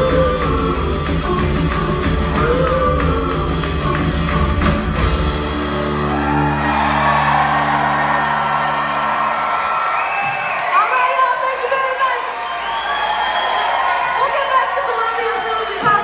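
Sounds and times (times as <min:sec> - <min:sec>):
woman singing: 0:00.0 - 0:04.8
live band playing: 0:00.0 - 0:12.3
crowd cheering and whooping: 0:05.6 - 0:16.0.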